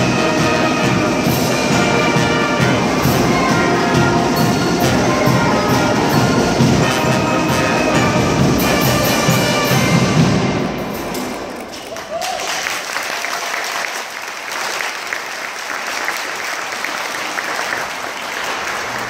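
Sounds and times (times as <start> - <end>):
brass band playing loudly: 0.0 - 11.7
percussion hits: 0.0 - 12.0.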